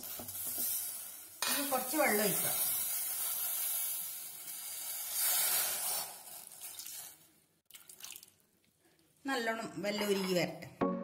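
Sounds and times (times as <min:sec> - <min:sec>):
water hissing in a pot: 0:00.0 - 0:07.4.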